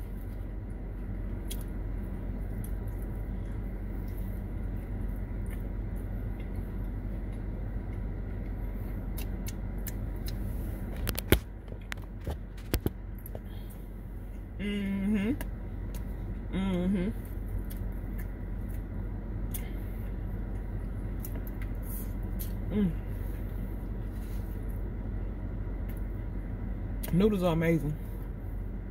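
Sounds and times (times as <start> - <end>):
low hum in car cabin: 0.0 - 28.9
person humming mmm: 14.6 - 15.4, 22.6 - 23.1.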